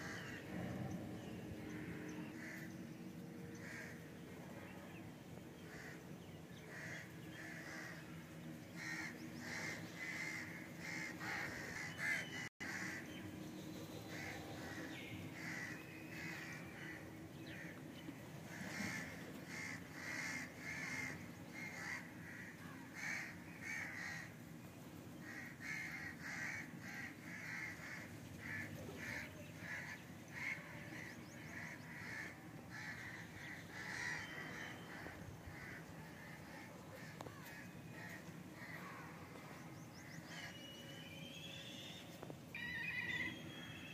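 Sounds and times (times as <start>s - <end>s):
crows cawing: 0.0s - 0.5s, 1.7s - 2.8s, 3.5s - 4.0s, 5.7s - 6.0s, 6.6s - 13.1s, 14.1s - 17.8s, 18.4s - 24.4s, 25.2s - 39.4s
low steady hum: 0.0s - 43.9s.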